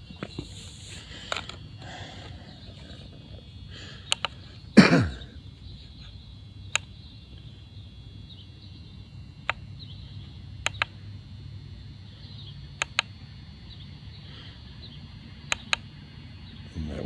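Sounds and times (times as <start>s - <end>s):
push-button clicks: 4.1s - 4.4s, 10.6s - 10.9s, 12.8s - 13.1s, 15.5s - 15.8s.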